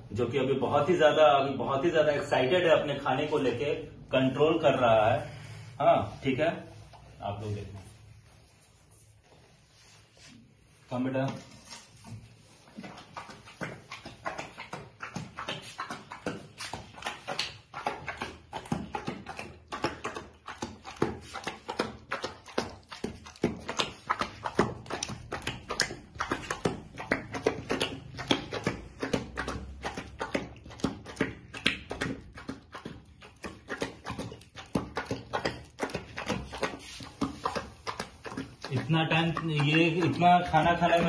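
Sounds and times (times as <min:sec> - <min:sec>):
puppy chomping wet food: 0:12.4 - 0:41.0.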